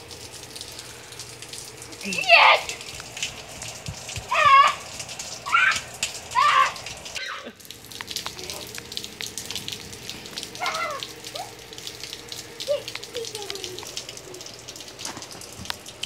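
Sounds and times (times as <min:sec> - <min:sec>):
rain pattering on wet ground: 0:00.0 - 0:16.0
children shouting and squealing: 0:02.2 - 0:02.8, 0:04.3 - 0:07.6, 0:10.6 - 0:11.6.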